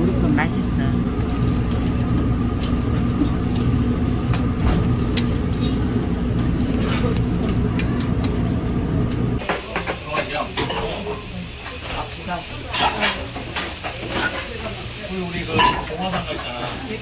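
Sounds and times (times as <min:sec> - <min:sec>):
low mechanical rumble with hum: 0:00.0 - 0:09.4.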